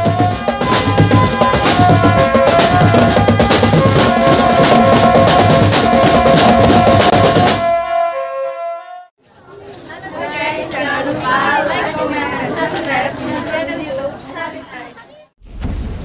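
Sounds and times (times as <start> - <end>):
snare and bass drums: 0.0 - 7.8.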